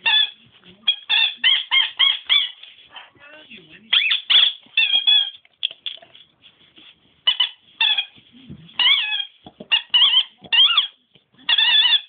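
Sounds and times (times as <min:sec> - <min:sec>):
dog squeaking: 0:00.0 - 0:02.9, 0:03.9 - 0:06.1, 0:07.2 - 0:12.0.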